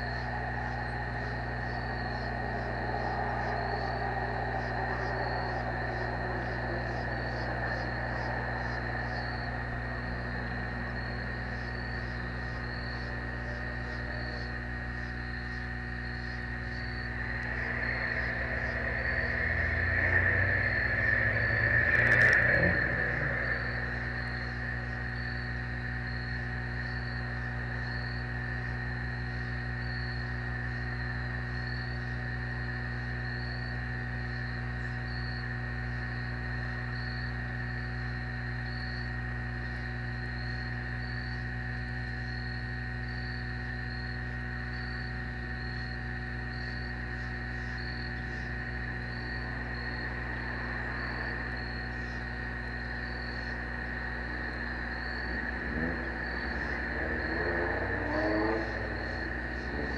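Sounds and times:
crickets chirping: 0.0s - 59.9s
steady low hum: 0.0s - 59.9s.

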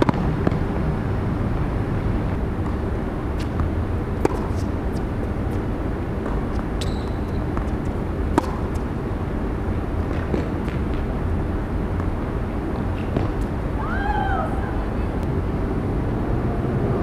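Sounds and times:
low urban background rumble: 0.0s - 17.0s
brief high squeak: 6.8s - 7.4s
tennis ball pops: 8.3s - 8.8s.

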